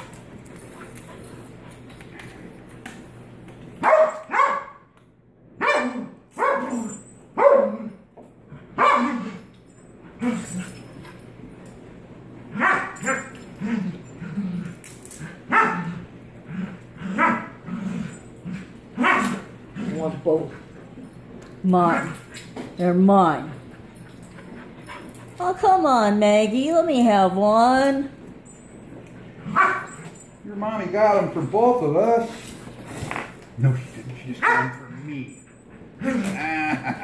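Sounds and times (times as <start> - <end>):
dog barking sharply: 3.8 - 4.8, 5.6 - 6.7, 34.4 - 34.7.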